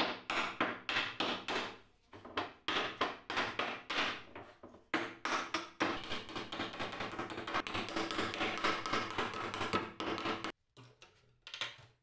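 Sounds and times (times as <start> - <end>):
hammer tapping nails: 4.9 - 10.6.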